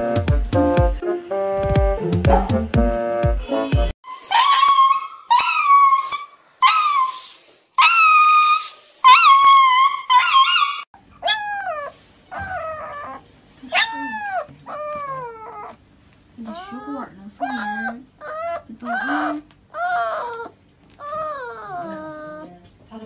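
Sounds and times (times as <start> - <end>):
small dog whining: 4.1 - 15.8, 16.4 - 22.6.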